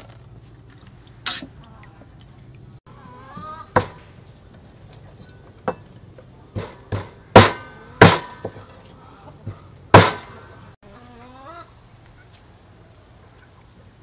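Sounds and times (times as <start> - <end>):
cleaver chopping chicken on wood: 3.7 - 4.0, 6.6 - 8.6, 9.5 - 10.4.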